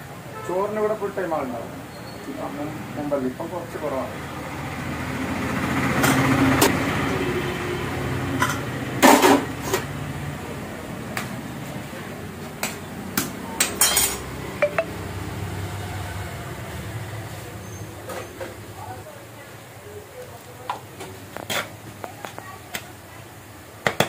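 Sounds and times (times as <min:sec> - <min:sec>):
metal cookware clanking: 0:13.8 - 0:14.3.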